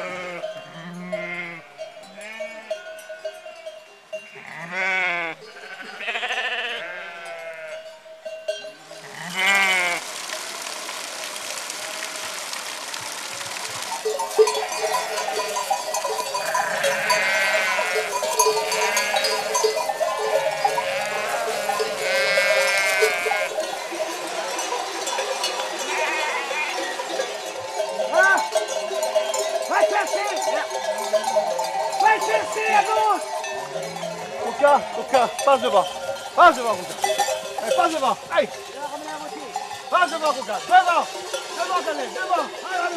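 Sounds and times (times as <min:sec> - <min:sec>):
sheep bleating: 0:00.0 - 0:02.8, 0:04.2 - 0:07.9, 0:09.0 - 0:10.0, 0:13.2 - 0:24.9, 0:25.6 - 0:27.1, 0:32.0 - 0:35.7
animal bells clanking: 0:00.0 - 0:12.0, 0:13.4 - 0:42.9.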